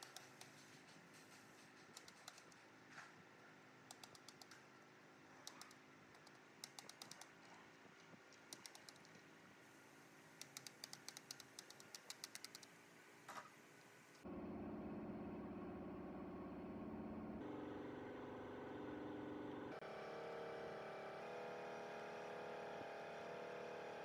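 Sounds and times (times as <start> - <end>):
faint steady hum: 0.0 - 18.4
loud steady hum: 14.2 - 24.0.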